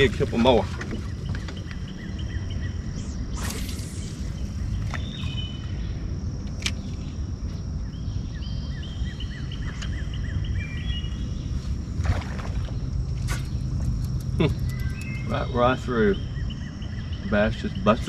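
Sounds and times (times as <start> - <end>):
birds chirping and whistling: 0.0 - 6.1, 7.8 - 18.0
high insect drone: 0.0 - 18.0
low rumble: 0.0 - 18.0
sharp clicks: 13.4 - 15.4.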